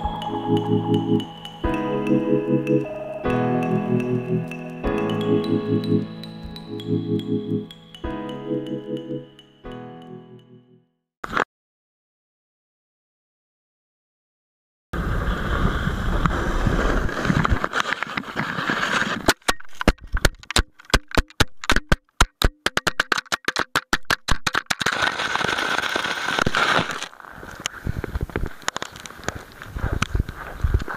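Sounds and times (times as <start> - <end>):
sliding over snow: 15.0 - 19.3, 24.9 - 30.9
camera tumbling clicks and knocks: 17.3 - 27.1.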